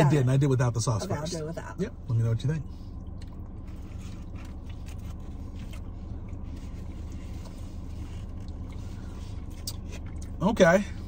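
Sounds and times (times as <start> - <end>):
car engine idling: 0.0 - 11.0
person eating: 3.0 - 10.4.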